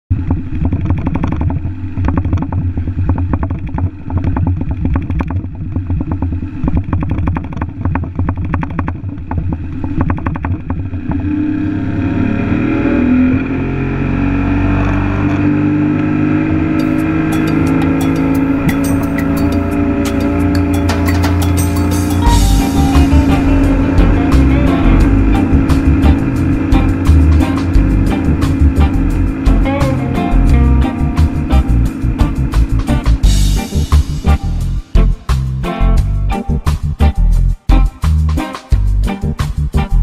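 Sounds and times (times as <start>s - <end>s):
wind and water noise: 0.1s - 21.4s
outboard motor running: 0.1s - 37.4s
music with percussion ticks: 16.8s - 40.0s.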